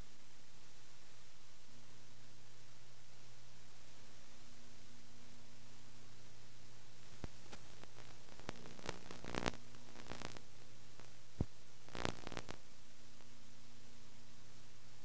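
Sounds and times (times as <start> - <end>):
low mains hum: 0.0 - 15.0
tape hiss: 0.0 - 15.0
crackles and clicks: 7.0 - 13.3.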